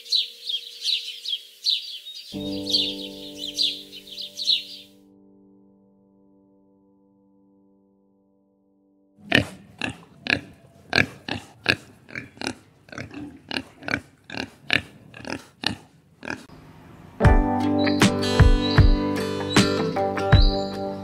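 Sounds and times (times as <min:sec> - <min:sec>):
music: 0:02.3 - 0:09.2, 0:17.2 - 0:21.0.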